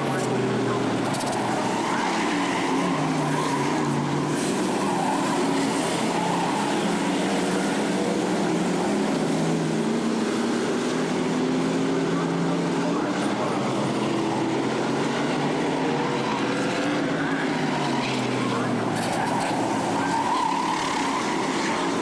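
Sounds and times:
racing car engines running: 0:00.0 - 0:22.0.

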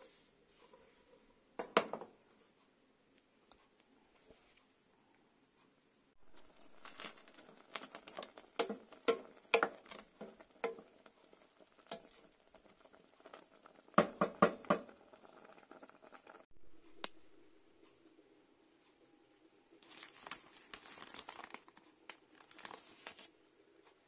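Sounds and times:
sauce bubbling in a pot: 0:06.2 - 0:16.5
wooden spoon knocking on pot: 0:08.6 - 0:10.9, 0:14.0 - 0:14.9.

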